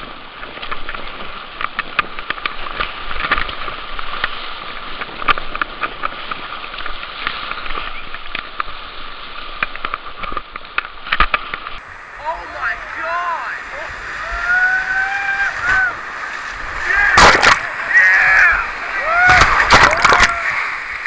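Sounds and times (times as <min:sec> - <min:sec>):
water splashing: 0:11.8 - 0:21.0
whitewater rushing: 0:11.8 - 0:21.0.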